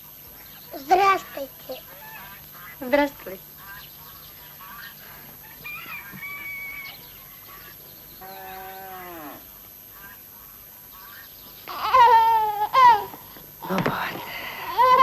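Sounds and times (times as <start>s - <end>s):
farmyard fowl calls: 4.1s - 9.3s
cow lowing: 8.2s - 9.5s.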